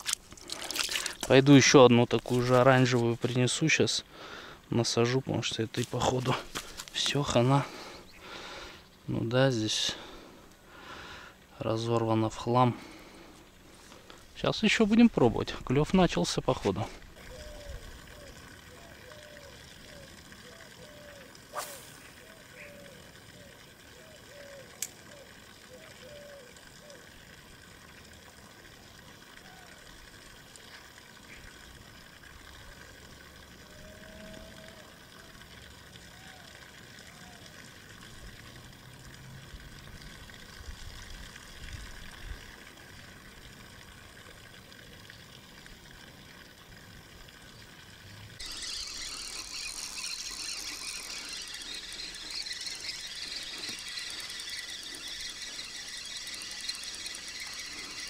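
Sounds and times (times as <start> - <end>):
fishing reel whirring: 17.0 - 28.7, 31.7 - 44.5, 45.9 - 58.0.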